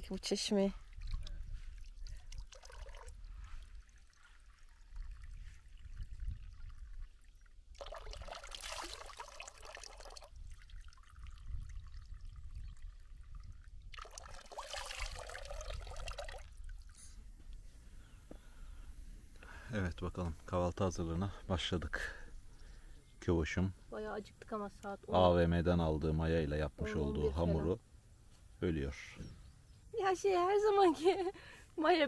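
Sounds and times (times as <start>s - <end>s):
water trickling into a trough: 0.0s - 17.6s, 19.4s - 22.0s
water splashing over face: 0.8s - 12.2s, 13.9s - 17.0s.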